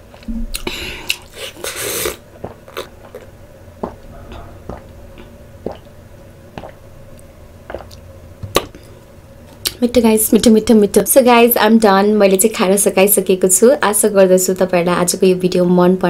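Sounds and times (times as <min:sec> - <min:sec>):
person swallowing gulps: 0:00.1 - 0:09.0.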